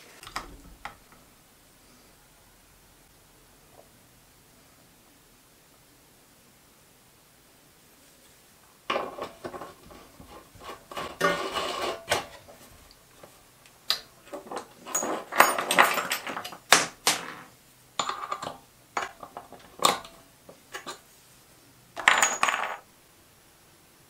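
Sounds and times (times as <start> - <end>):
metal parts clinking and scraping: 14.2 - 17.2, 18.0 - 21.0, 22.0 - 22.8.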